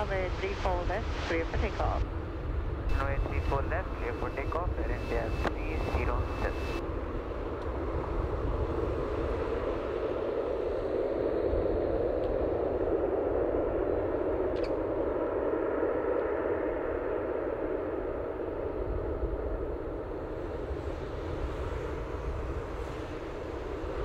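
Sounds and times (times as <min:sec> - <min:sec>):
jet engines idling: 0:00.0 - 0:06.9.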